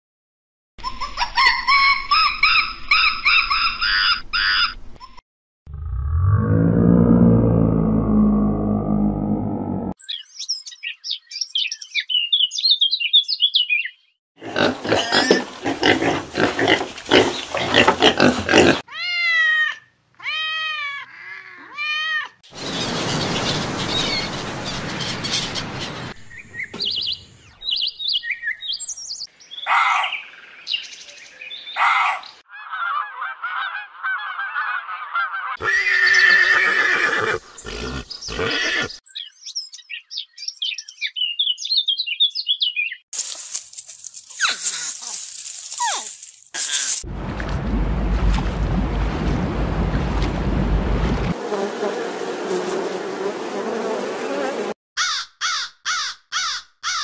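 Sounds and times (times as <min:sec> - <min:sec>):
bird chirping: 0:10.0 - 0:14.2, 0:22.6 - 0:32.4, 0:37.4 - 0:43.1.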